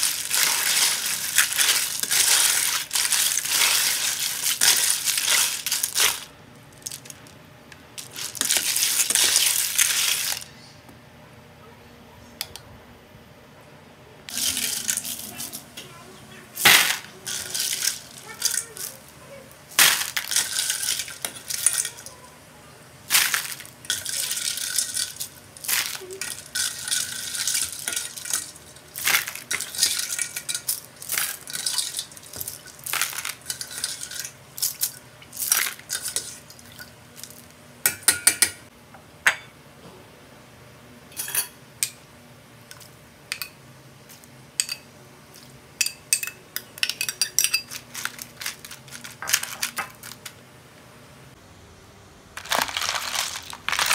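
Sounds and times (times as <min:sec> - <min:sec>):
metal and ice clinking in bowl: 0:00.0 - 0:07.2, 0:08.0 - 0:10.4, 0:16.6 - 0:19.1, 0:19.7 - 0:22.2, 0:23.1 - 0:38.7, 0:44.6 - 0:50.3, 0:52.4 - 0:53.9.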